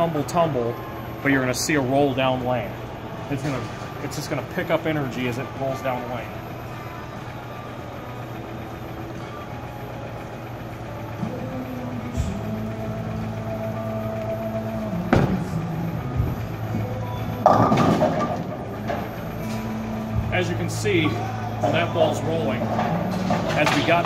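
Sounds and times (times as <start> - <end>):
low machinery hum: 0.0 - 24.0
bowling ball rolling rumble: 14.6 - 19.3
bowling pins crashing: 17.4 - 19.1.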